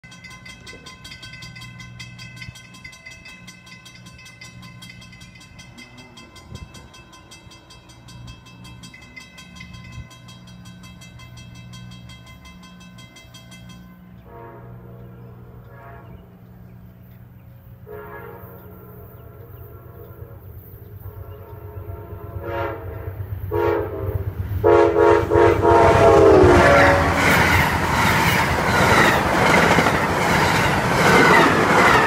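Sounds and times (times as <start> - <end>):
rapid ringing tick: 0.0 - 14.3
train approaching: 0.0 - 32.0
locomotive air horn: 14.0 - 16.6, 17.8 - 27.6.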